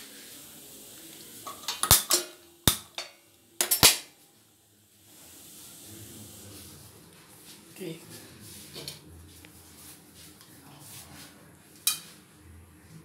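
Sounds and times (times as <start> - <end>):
metal pan clanking on grate: 11.8 - 12.1.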